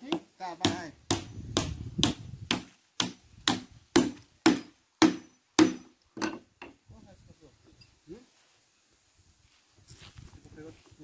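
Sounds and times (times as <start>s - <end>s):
hammer driving nails into wood: 0.1s - 6.4s.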